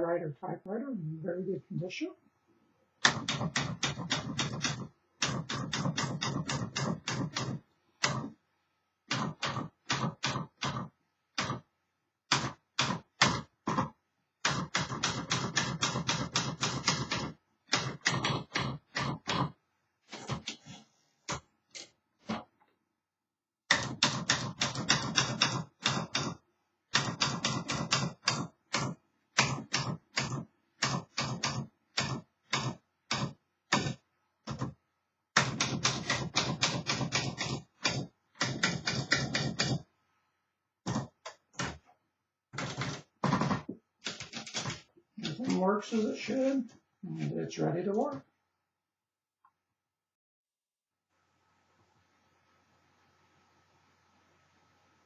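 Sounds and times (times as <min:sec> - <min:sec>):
manual typewriter clacking: 0:03.0 - 0:08.3, 0:12.3 - 0:19.5, 0:23.7 - 0:34.7, 0:35.4 - 0:39.8, 0:42.6 - 0:45.7.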